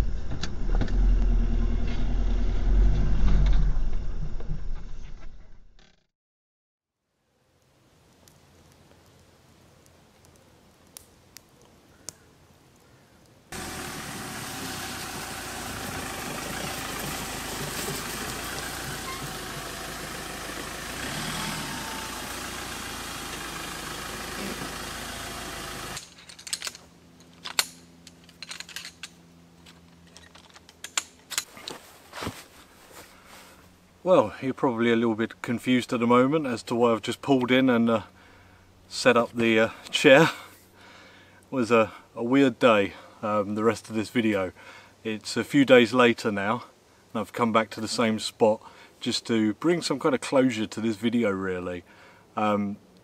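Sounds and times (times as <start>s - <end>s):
pickup truck engine and tyres: 13.6s - 26.2s.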